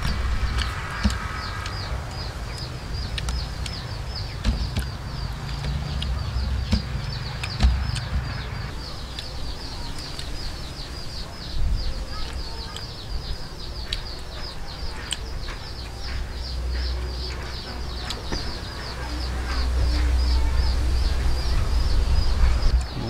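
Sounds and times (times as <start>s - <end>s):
small bird chirping: 0.0s - 23.0s
dull knocks: 4.4s - 5.9s, 6.6s - 8.4s.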